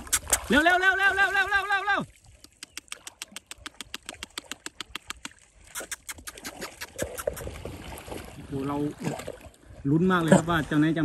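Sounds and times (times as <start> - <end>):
water splashes lapping: 0.0 - 11.0
faint sharp clicks: 2.4 - 7.4.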